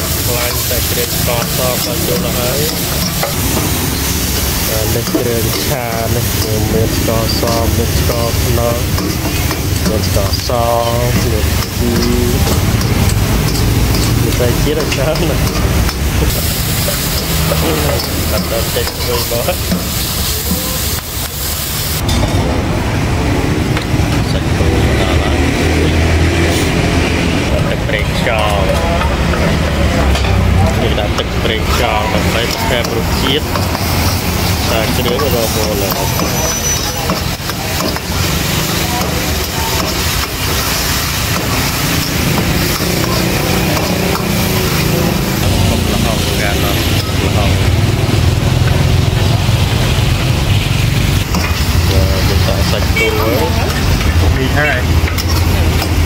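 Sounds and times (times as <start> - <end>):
metal spatula scraping a wok: 0.0 - 8.1
food sizzling in hot oil: 0.0 - 22.0, 30.7 - 56.0
metal spatula scraping wok: 0.0 - 22.2, 31.6 - 45.5.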